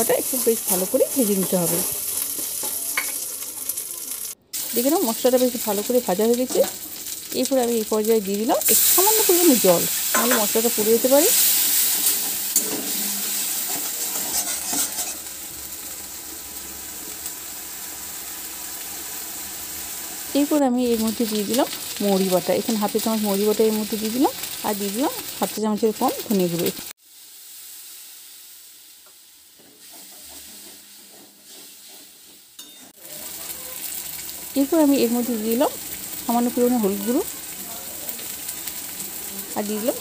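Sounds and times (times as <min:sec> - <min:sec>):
paste sizzling in hot oil: 0:00.0 - 0:40.0
spatula scraping and stirring: 0:11.3 - 0:15.3, 0:29.6 - 0:34.0
metal spatula scraping pan: 0:11.4 - 0:15.3.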